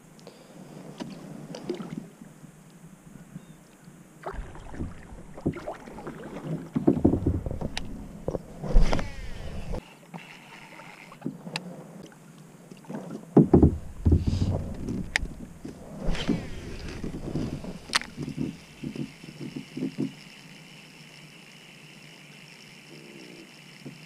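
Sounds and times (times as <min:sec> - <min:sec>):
paddle splashing in water: 0:04.2 - 0:09.8, 0:12.8 - 0:18.9
paddle knocking against hull: 0:04.3 - 0:09.8, 0:13.3 - 0:20.2.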